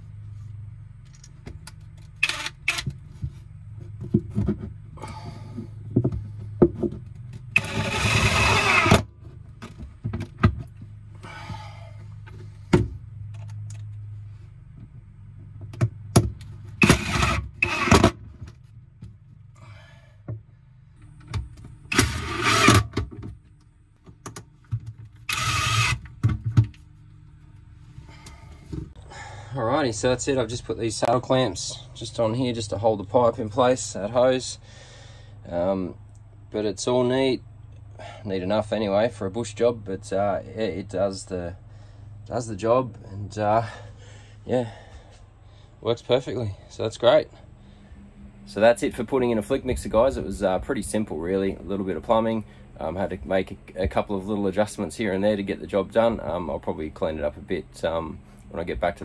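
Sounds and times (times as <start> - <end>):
steady low hum: 0.0 - 59.0
cordless drill driving screws: 2.2 - 2.9, 7.6 - 9.1, 16.8 - 18.1, 21.9 - 22.9, 25.2 - 26.1.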